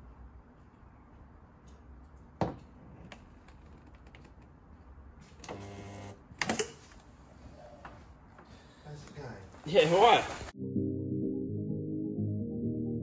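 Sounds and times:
short electric welding buzz: 0:05.5 - 0:06.2.

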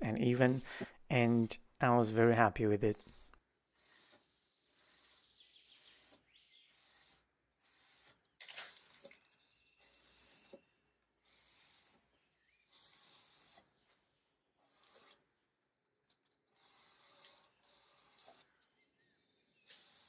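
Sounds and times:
cloth wiping wood: 0:00.3 - 0:01.5.

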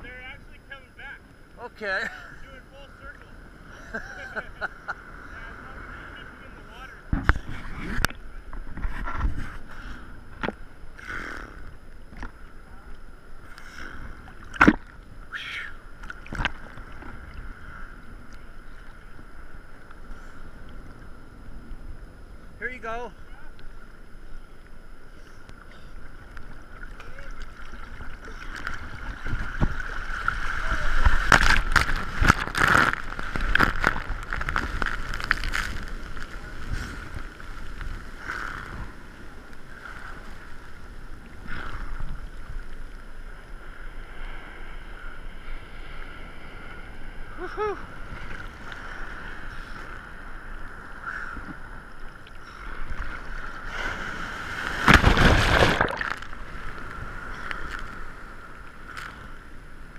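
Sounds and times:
wind on microphone: 0:07.0 - 0:11.6
seawater sloshing and splashing: 0:52.9 - 0:58.0.

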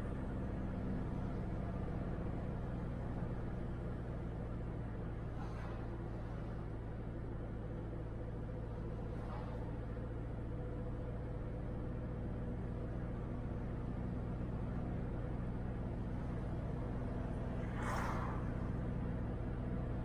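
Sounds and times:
car engine and road hum: 0:00.0 - 0:20.0.

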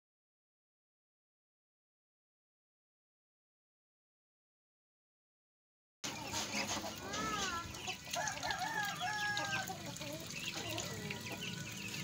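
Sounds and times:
chickens clucking: 0:06.0 - 0:12.0
ducklings peeping: 0:06.0 - 0:12.0.

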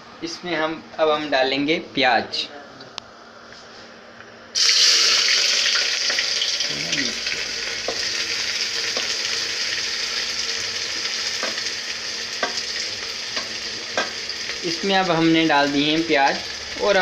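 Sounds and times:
onions sizzling in hot oil: 0:04.6 - 0:17.0.

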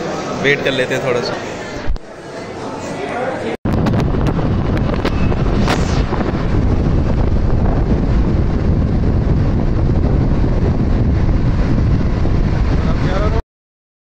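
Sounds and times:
vehicle travel rumble: 0:03.7 - 0:13.4
wind buffeting microphone: 0:03.7 - 0:13.4.

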